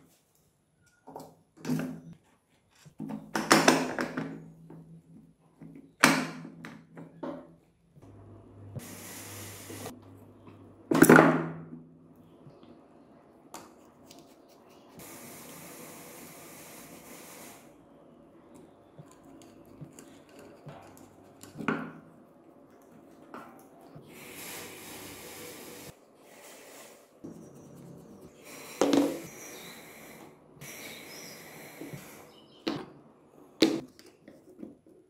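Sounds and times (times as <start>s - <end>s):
hiss: 8.8s - 10.0s, 15.0s - 17.8s, 24.0s - 27.1s, 28.4s - 32.3s.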